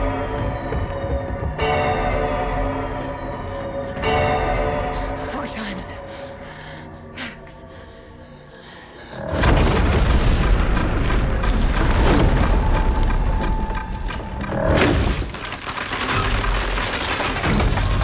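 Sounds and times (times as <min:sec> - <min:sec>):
earthquake deep rumble: 0:09.2 - 0:18.0
crackling and crumbling debris: 0:09.3 - 0:18.0.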